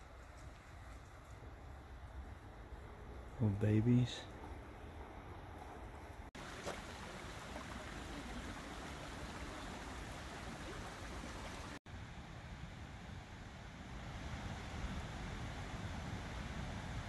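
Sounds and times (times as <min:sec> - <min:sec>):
creek rushing over rocks: 0:06.4 - 0:11.8.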